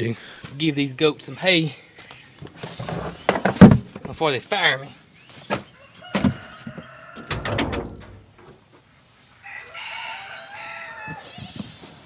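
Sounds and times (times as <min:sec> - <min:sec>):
rooster crowing: 0:05.8 - 0:07.7, 0:09.4 - 0:11.6.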